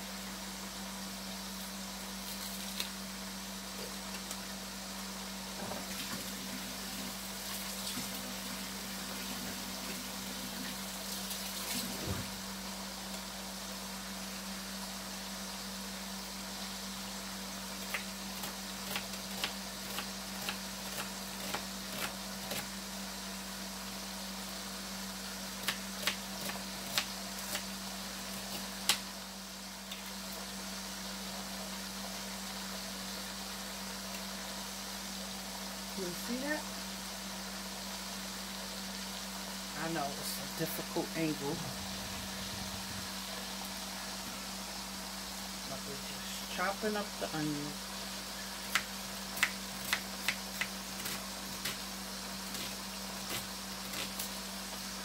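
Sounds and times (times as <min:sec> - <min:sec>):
steady hiss: 0:00.0 - 0:55.0
low hum: 0:39.1 - 0:48.3.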